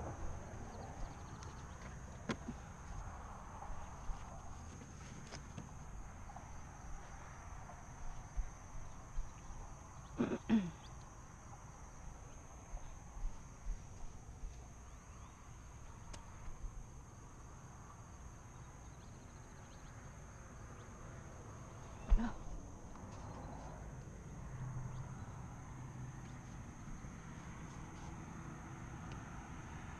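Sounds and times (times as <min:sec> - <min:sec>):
crickets chirping drone: 0:00.0 - 0:29.9.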